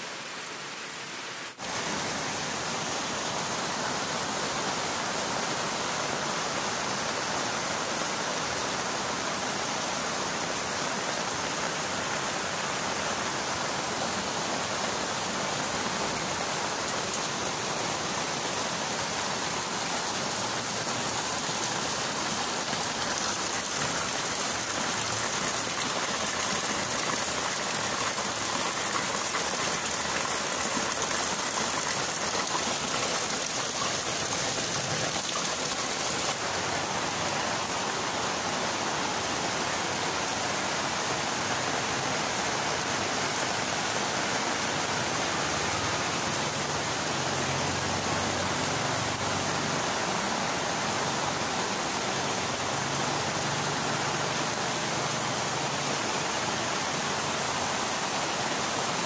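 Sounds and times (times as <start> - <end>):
heavy rain on leaves and concrete: 0.0 - 59.0
rainwater splashing into water drum: 15.8 - 37.3.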